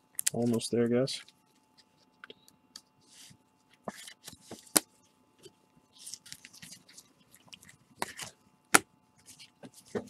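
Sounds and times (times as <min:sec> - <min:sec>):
cards shuffling and scraping: 0:02.8 - 0:08.4, 0:09.2 - 0:10.0.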